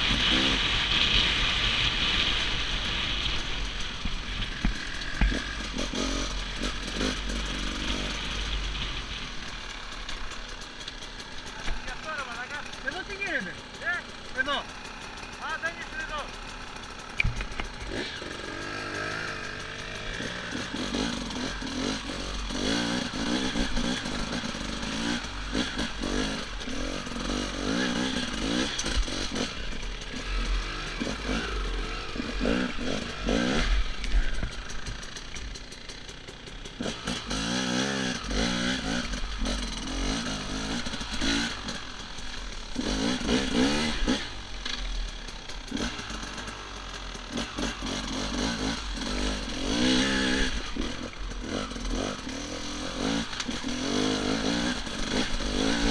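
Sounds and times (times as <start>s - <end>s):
dirt bike engine revving: 0.0s - 55.9s
bike knocks and rattles: 3.8s - 6.0s, 17.1s - 18.1s.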